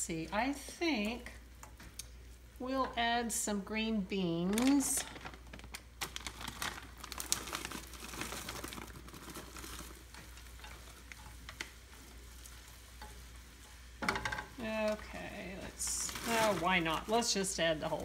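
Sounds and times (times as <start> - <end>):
faint sizzle of hot oil: 0.0 - 18.0
frozen vegetables rattling in pan: 4.4 - 18.0.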